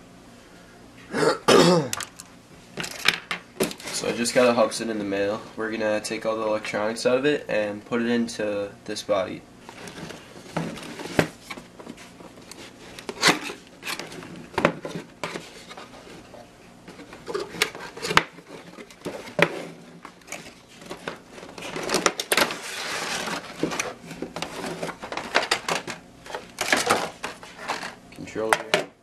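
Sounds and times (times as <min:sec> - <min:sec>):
packaging rustling: 0:16.9 - 0:28.0.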